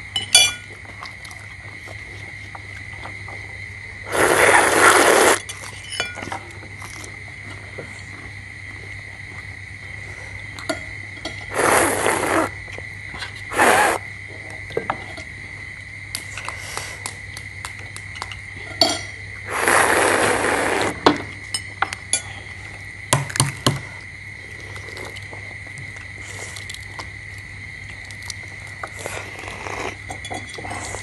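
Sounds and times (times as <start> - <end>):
spoons clinking on bowls: 0.2 - 0.7, 5.7 - 6.3, 18.2 - 19.2, 30.1 - 30.7
loud noisy bursts: 4.1 - 5.4, 11.5 - 12.5, 13.5 - 14.0, 19.5 - 21.0.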